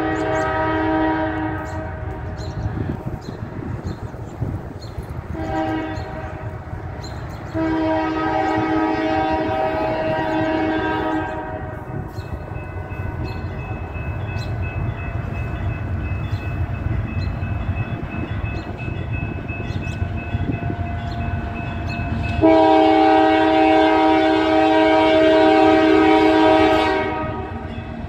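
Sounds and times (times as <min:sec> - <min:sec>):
locomotive air horn blasts: 0:00.0 - 0:02.3, 0:05.3 - 0:06.6, 0:07.5 - 0:12.1, 0:20.0 - 0:27.7.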